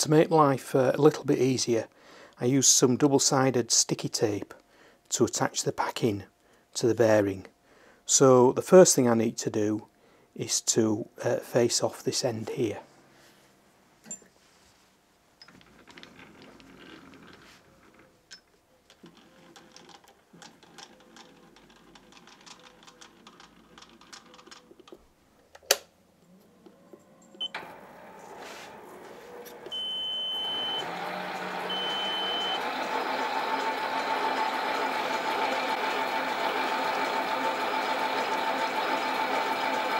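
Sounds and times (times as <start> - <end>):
lathe motor running: 27.5 - 39.9
short beeps: 29.7 - 30.8.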